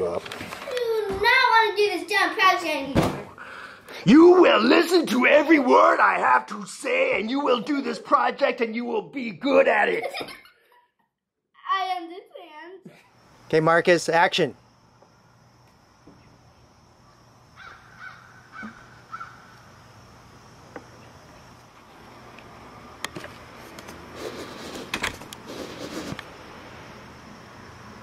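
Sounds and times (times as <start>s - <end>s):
bird calling: 17.0s - 19.7s.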